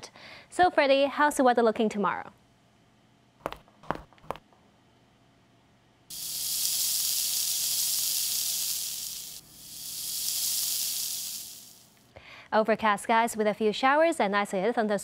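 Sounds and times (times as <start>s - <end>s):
rain hissing: 6.1s - 12.0s.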